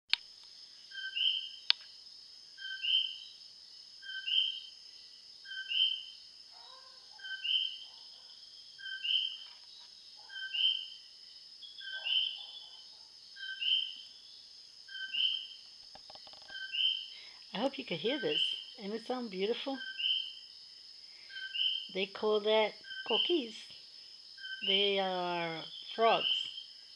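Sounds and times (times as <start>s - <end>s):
high-pitched chorus of night callers: 0.7s - 1.9s, 2.5s - 3.4s, 4.0s - 26.9s
frogs calling two-note calls: 14.9s - 15.6s.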